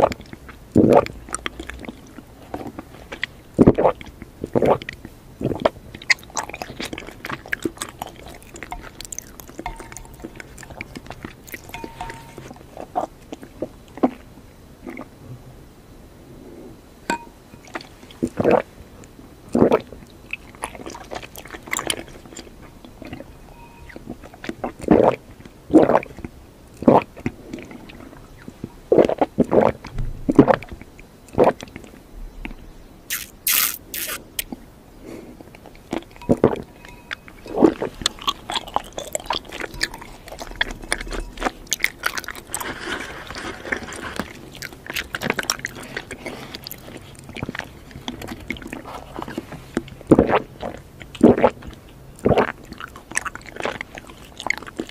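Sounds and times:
squishy chewing: 0:00.0 - 0:15.1, 0:17.6 - 0:18.7, 0:19.4 - 0:54.9
wet slurps through a straw: 0:19.5 - 0:23.2, 0:33.1 - 0:34.4, 0:37.4 - 0:54.9.

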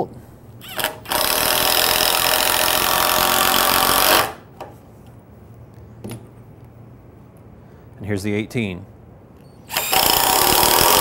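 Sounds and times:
impact driver hammering: 0:09.7 - 0:11.0.

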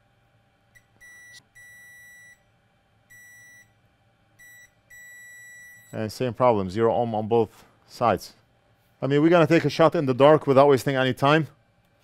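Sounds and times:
multimeter beeping: 0:00.8 - 0:02.4, 0:03.1 - 0:03.7, 0:04.4 - 0:06.0.

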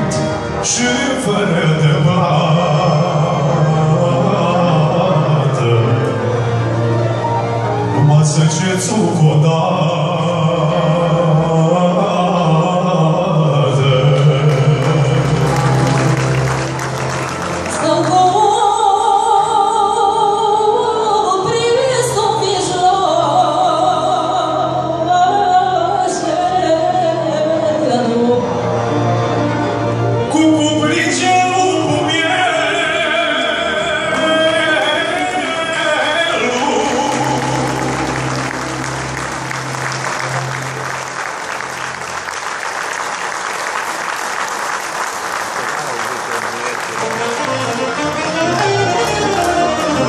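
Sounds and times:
folk orchestra playing: 0:00.0 - 0:50.0
audience applauding: 0:14.0 - 0:18.7, 0:34.1 - 0:50.0.

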